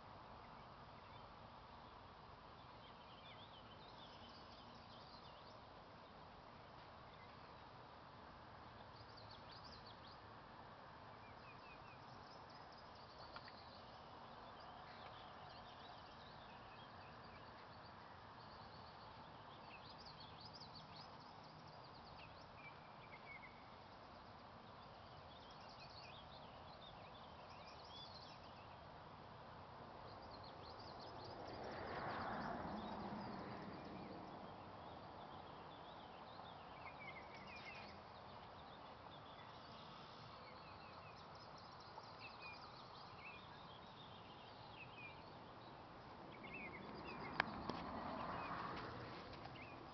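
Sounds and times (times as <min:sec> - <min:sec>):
songbirds chirping and trilling: 0:00.0 - 0:49.9
steady low hiss: 0:00.0 - 0:49.9
soft rushing noise: 0:42.9 - 0:49.9.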